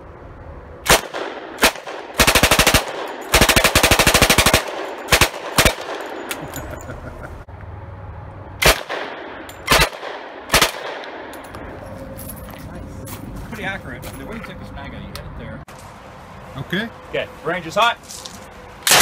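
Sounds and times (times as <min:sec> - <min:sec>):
single gunshots: 0:00.9 - 0:03.7, 0:08.6 - 0:11.3
submachine gun firing bursts: 0:00.9 - 0:06.1, 0:09.7 - 0:11.0.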